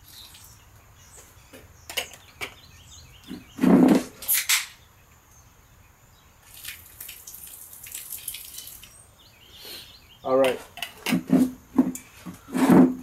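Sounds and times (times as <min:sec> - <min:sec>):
beer pouring and splashing on ground: 0:06.4 - 0:09.0.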